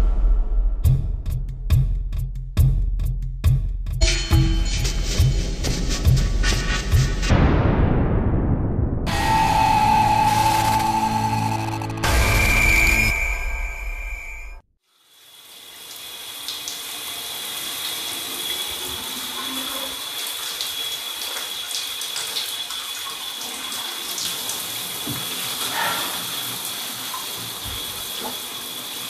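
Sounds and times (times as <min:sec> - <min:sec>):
shower water spraying into bathtub: 0:14.9 - 0:29.0.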